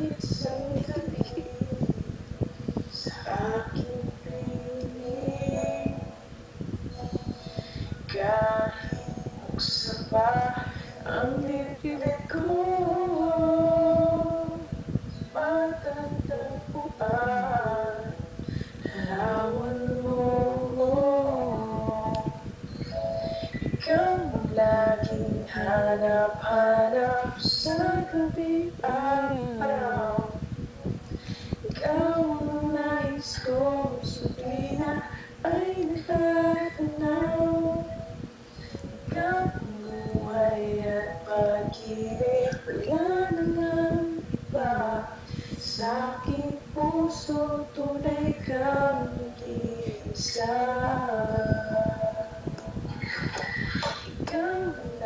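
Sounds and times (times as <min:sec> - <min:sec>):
woman singing slow melody: 0:00.0 - 0:06.3, 0:06.9 - 0:55.0.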